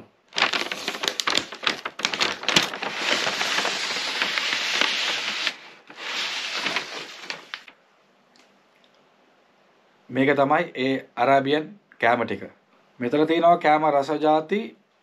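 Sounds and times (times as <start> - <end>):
paper wrapping rustling: 0.0 - 7.8.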